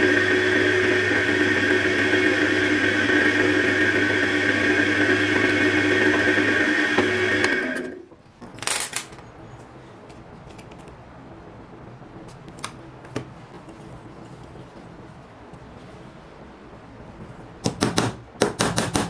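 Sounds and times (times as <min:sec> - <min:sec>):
drill press motor humming: 0:00.0 - 0:08.1.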